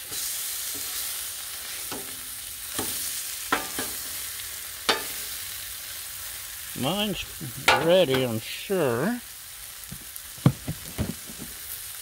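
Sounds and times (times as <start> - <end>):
steaks sizzling on griddle: 0.0 - 12.0
spatula clicking on metal griddle: 1.9 - 4.0, 4.9 - 5.2.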